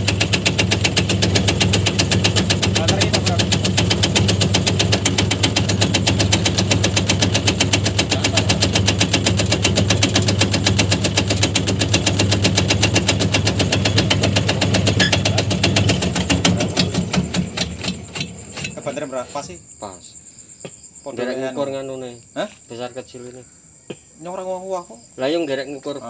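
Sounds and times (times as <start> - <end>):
shredding blade chattering: 0.0 - 19.6.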